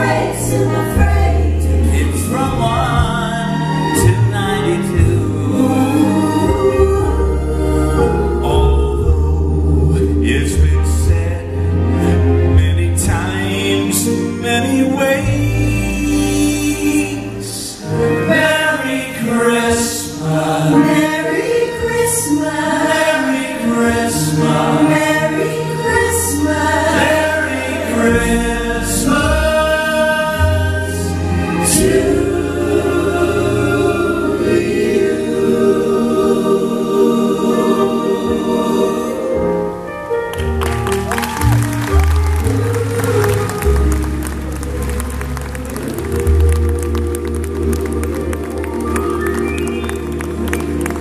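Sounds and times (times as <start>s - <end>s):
live band with bass line: 0.0s - 18.6s, 23.6s - 51.0s
mixed group singing in harmony: 0.0s - 39.9s.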